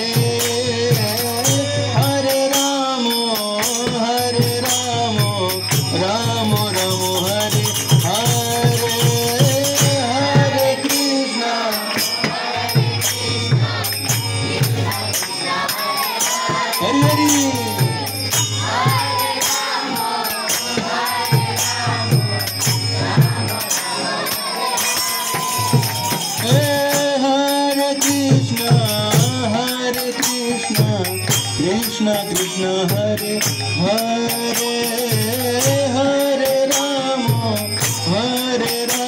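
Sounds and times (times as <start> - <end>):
man singing a chant: 0.0 - 13.9, 14.6 - 18.1, 26.4 - 39.0
jingling hand percussion: 0.0 - 39.0
low drum beats: 16.4 - 23.8.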